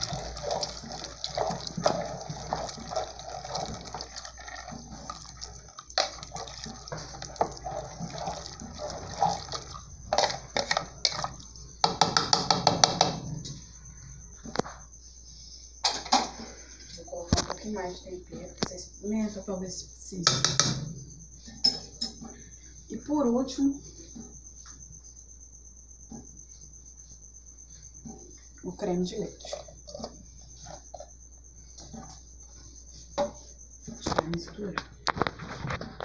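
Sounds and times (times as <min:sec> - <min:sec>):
liquid sloshing in pot: 0:00.0 - 0:12.4, 0:29.1 - 0:34.0
spoon scraping and knocking pot: 0:00.0 - 0:13.6, 0:20.2 - 0:22.3.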